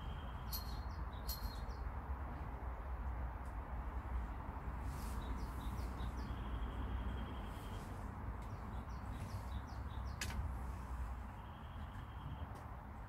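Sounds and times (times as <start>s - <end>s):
songbird chirping and trilling: 0.0s - 1.9s, 4.9s - 10.4s, 11.2s - 12.6s.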